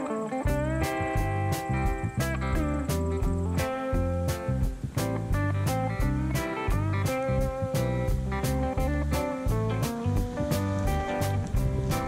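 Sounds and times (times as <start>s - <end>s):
guitar: 0.0s - 12.0s
steady drum beat: 0.4s - 12.0s.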